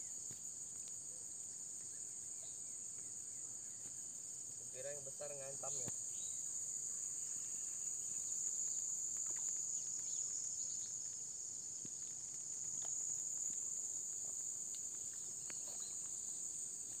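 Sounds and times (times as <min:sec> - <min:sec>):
insect chorus droning: 0:00.0 - 0:17.0
faint ticks: 0:07.8 - 0:17.0.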